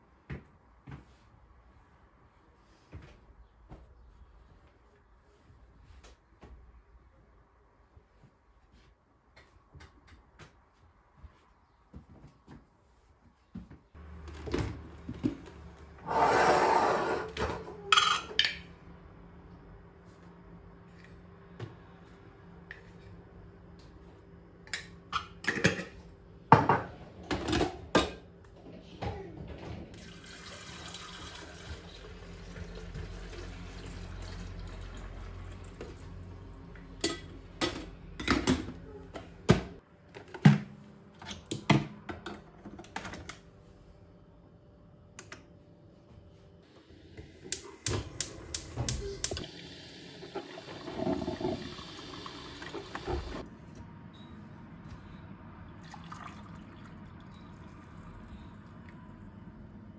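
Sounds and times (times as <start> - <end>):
water pouring: 30.0 - 36.2, 49.4 - 53.4, 55.8 - 58.5
coffee maker brewing hiss: 47.1 - 53.4.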